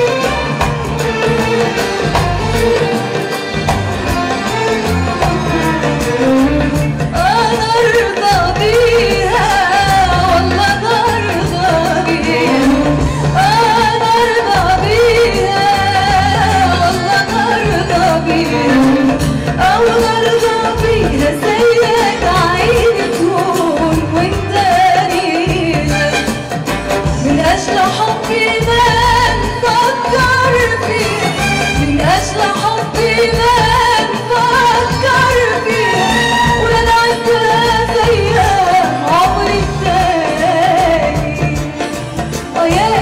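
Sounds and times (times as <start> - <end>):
orchestra accompaniment: 0.0 - 43.0
woman singing: 0.0 - 43.0.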